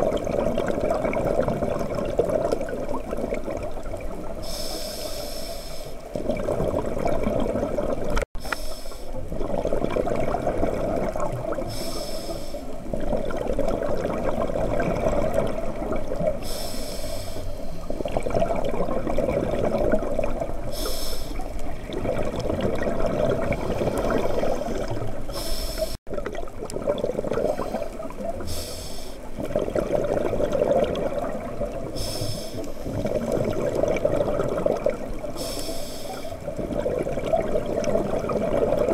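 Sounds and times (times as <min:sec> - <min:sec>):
exhaled bubbles rushing: 0:00.0 - 0:04.5, 0:06.1 - 0:08.2, 0:09.2 - 0:11.9, 0:12.8 - 0:16.6, 0:17.8 - 0:20.8, 0:21.4 - 0:28.5, 0:29.2 - 0:32.1, 0:32.8 - 0:35.6, 0:36.4 - 0:38.9
regulator inhalation hiss: 0:04.4 - 0:06.1, 0:08.4 - 0:09.2, 0:11.7 - 0:12.8, 0:16.4 - 0:18.0, 0:20.7 - 0:21.5, 0:25.3 - 0:26.0, 0:27.6 - 0:29.3, 0:32.0 - 0:32.9, 0:35.4 - 0:36.4.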